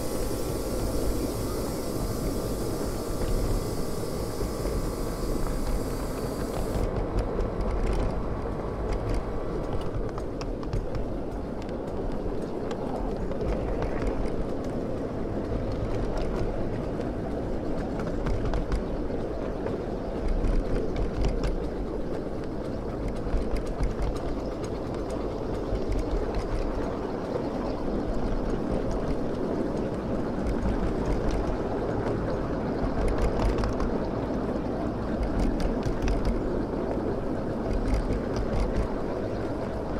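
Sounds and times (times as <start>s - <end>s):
steam venting hiss: 0.0s - 7.2s
wheels rumbling on rail: 0.0s - 39.9s.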